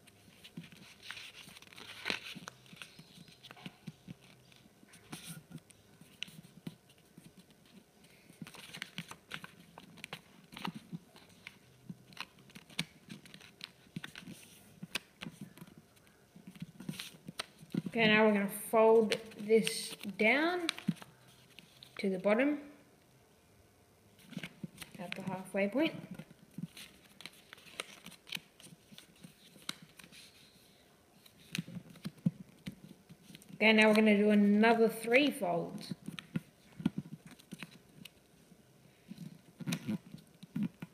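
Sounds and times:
paper rustling and creasing: 0.0s - 18.2s, 18.9s - 22.0s, 24.2s - 25.5s, 26.2s - 34.0s, 35.9s - 38.2s.

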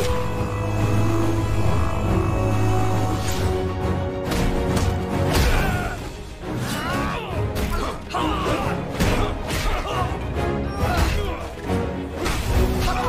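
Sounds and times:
orchestral action score: 0.0s - 13.0s.

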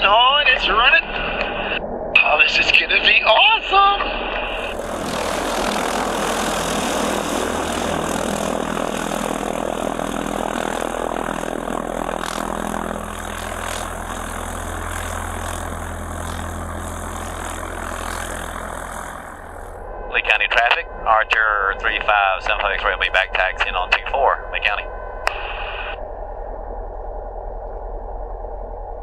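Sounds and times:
light aircraft engine and propeller: 3.1s - 25.9s.

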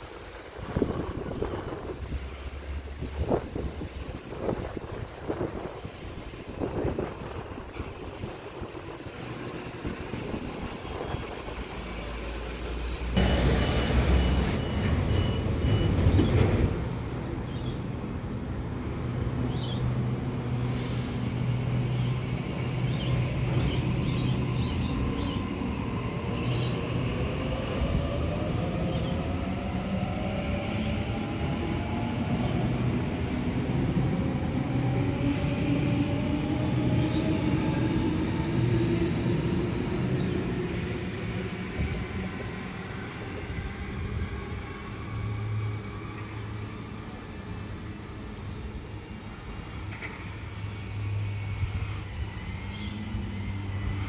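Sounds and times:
train motor whine rising: 12.7s - 15.2s
loud burst of noise: 13.2s - 14.8s.

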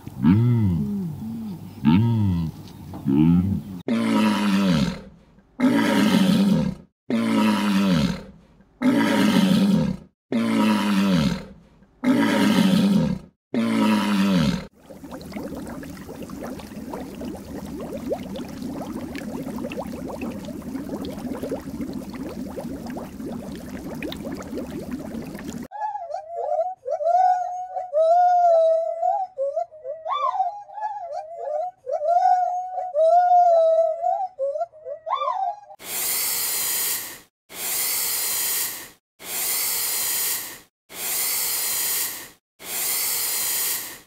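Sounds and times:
animal deep calls: 14.8s - 25.7s
faint crackle: 14.8s - 25.7s.

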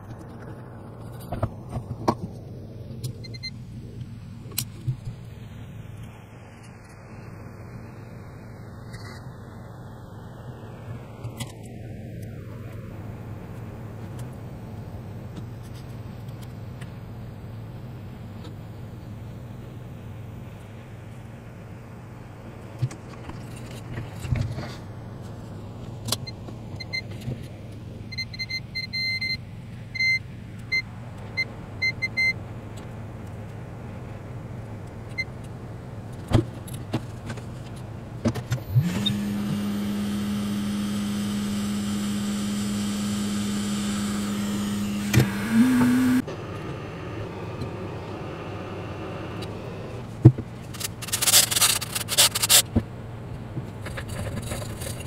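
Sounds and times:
electric blower humming: 38.6s - 50.1s.

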